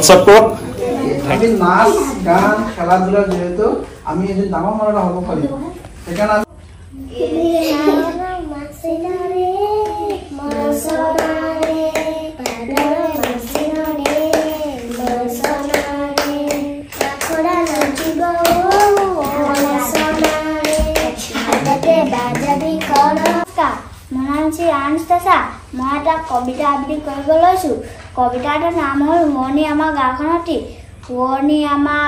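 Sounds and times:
girls singing together: 0:07.0 - 0:23.5
hand claps: 0:09.8 - 0:23.5.

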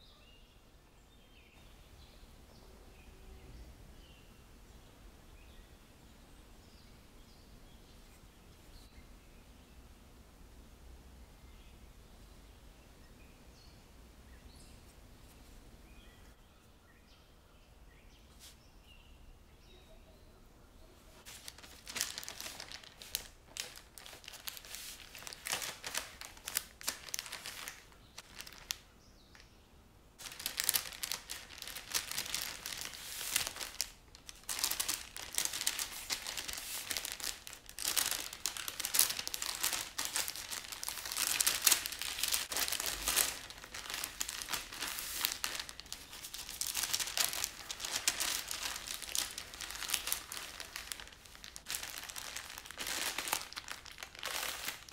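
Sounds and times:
baking parchment crinkling: 0:21.2 - 0:29.4, 0:30.2 - 0:54.9.

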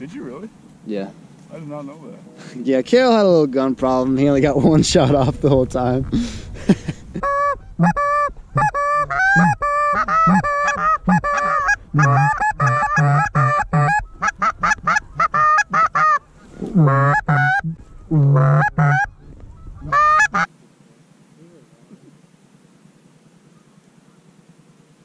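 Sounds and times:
goose honking and clucking: 0:07.2 - 0:20.5.

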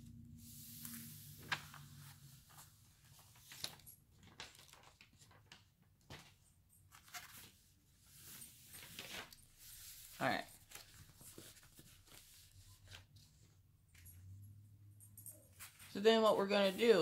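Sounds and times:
paper rustling: 0:00.6 - 0:13.6.

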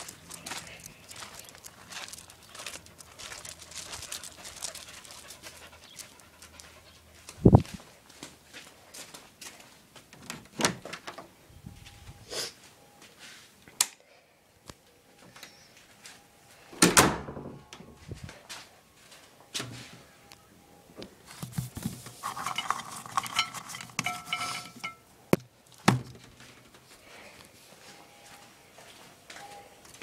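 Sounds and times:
clinking and rattling: 0:22.2 - 0:25.0.

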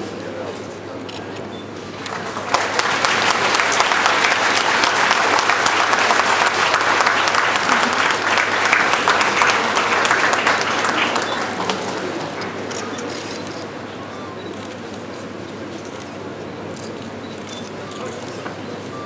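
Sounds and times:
audience applauding: 0:02.0 - 0:13.6.

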